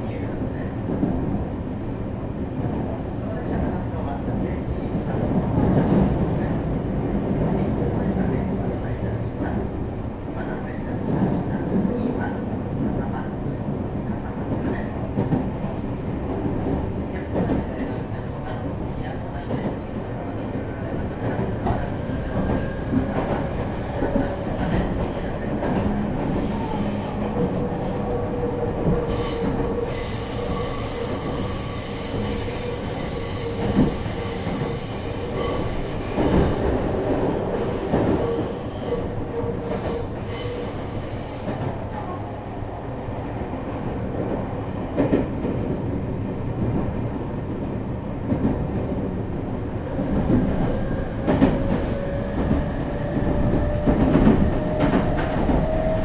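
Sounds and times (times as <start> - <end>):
train rolling noise: 20.8 - 56.0
rail joint clacks: 28.8 - 42.2, 50.1 - 56.0
high-pitched wheel squeal: 29.1 - 39.2, 39.8 - 41.6.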